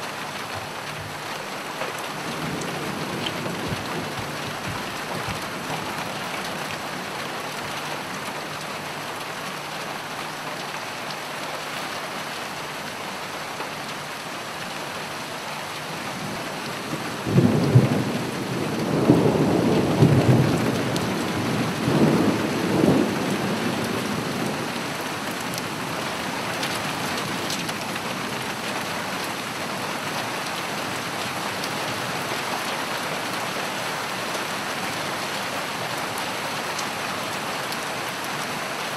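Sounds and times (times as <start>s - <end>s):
steady rain hissing: 0.0s - 38.9s
thunder rumbling: 2.2s - 6.4s, 16.9s - 25.5s.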